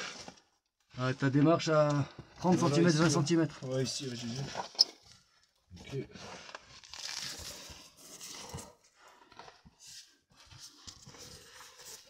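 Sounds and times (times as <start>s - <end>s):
clothing scraping against rock: 6.2s - 9.2s.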